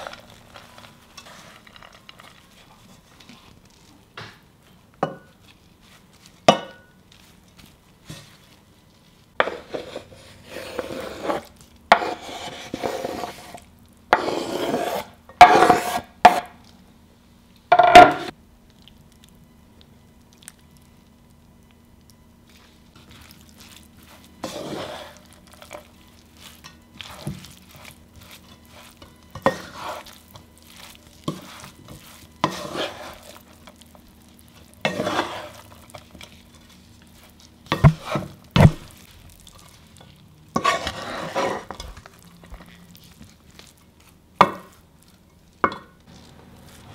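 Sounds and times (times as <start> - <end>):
spatula scraping a frying pan: 0.0 - 3.1, 9.4 - 16.5, 23.0 - 38.8, 40.5 - 42.0.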